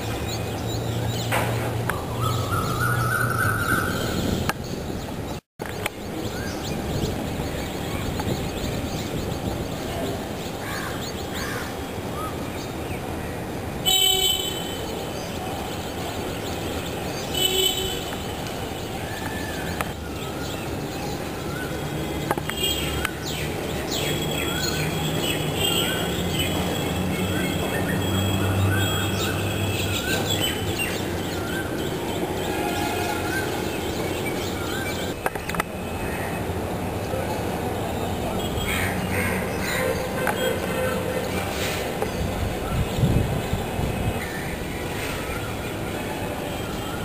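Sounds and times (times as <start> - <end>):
bird chirping: 0.0 - 11.5
urban traffic noise: 0.0 - 47.0
vehicle horn honks: 13.8 - 14.9, 17.4 - 18.1, 32.4 - 33.4.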